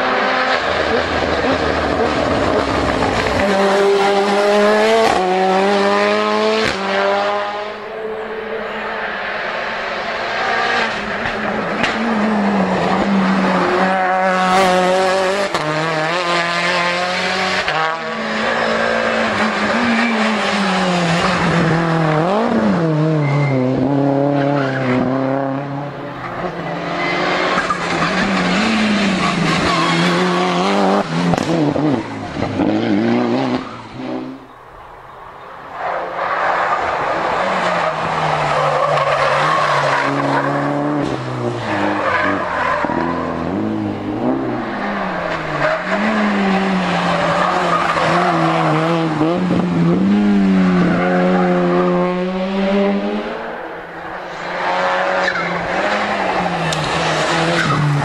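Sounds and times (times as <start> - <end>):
race car engines revving: 0.0 - 58.0
tyre squeal: 23.1 - 23.9.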